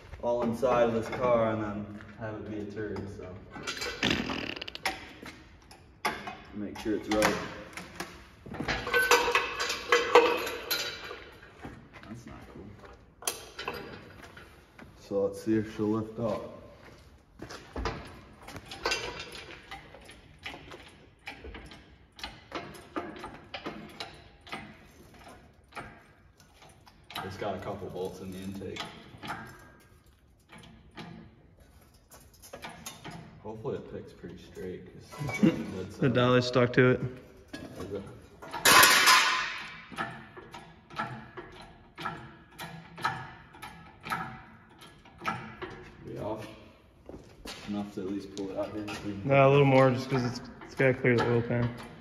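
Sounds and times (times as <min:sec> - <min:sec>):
hydraulic hoist pump clacking: 0:17.6 - 0:34.7, 0:37.5 - 0:52.0.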